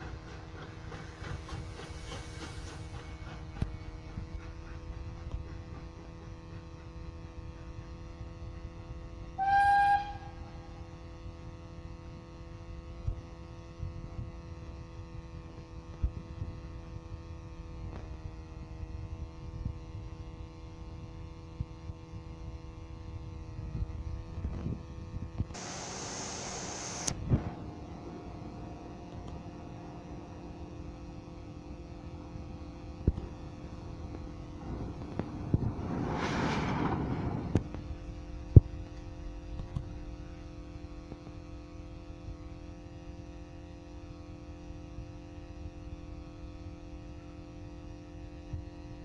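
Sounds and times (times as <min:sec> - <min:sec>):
loud steam hiss: 0:00.0 - 0:05.2, 0:25.6 - 0:27.6
steady hum and low rumble: 0:01.2 - 0:49.0
steam locomotive whistle: 0:09.4 - 0:10.7.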